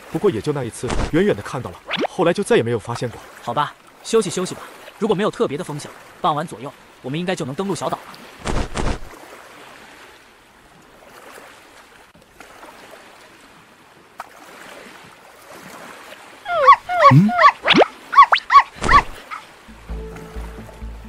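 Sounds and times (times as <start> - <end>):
faint water ambience: 0.0 - 21.0
dog yelping and whining: 16.5 - 19.4.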